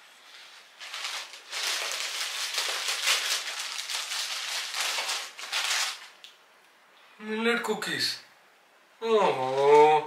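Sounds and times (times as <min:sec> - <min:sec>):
cellophane crinkling: 0:00.1 - 0:06.4.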